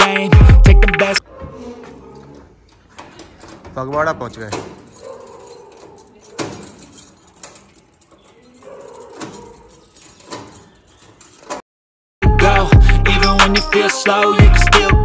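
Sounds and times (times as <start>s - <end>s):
hip hop music with rapping: 0.0s - 1.2s, 12.2s - 15.0s
key clicking in gate lock: 2.7s - 11.6s.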